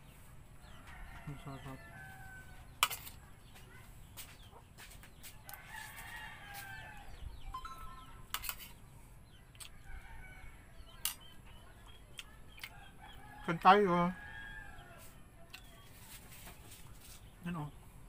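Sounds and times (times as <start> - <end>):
rooster crowing: 0.7 - 2.7, 5.5 - 7.2, 13.0 - 15.1.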